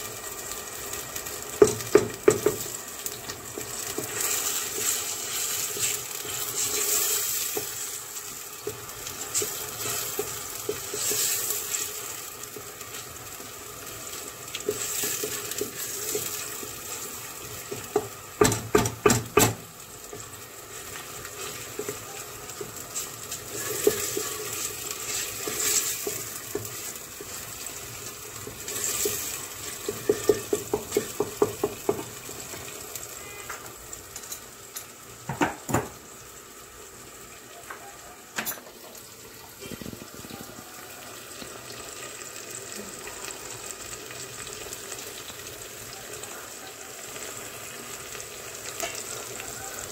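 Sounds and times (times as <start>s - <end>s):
onion sizzling in oil: 0.0s - 49.9s
wooden spoon knocking pot: 1.5s - 2.8s, 17.7s - 19.6s, 28.5s - 32.2s, 35.3s - 36.0s.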